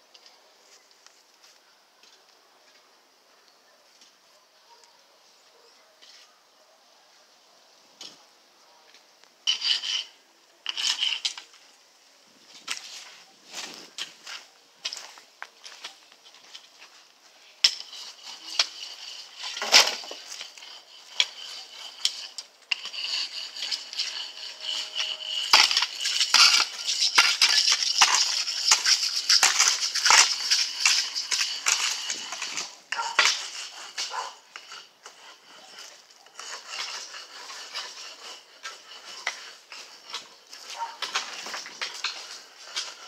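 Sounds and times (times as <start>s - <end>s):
metal shovel scraping stony soil: 9.4s - 43.0s.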